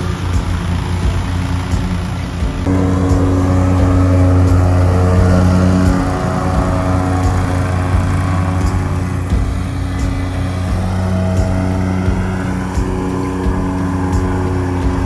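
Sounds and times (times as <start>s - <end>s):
mower engine running: 0.0s - 15.0s.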